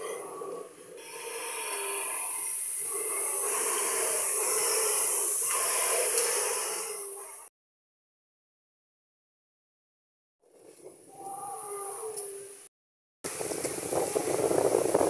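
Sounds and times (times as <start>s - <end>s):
hissing growling roar: 0.0s - 7.5s, 11.1s - 12.5s.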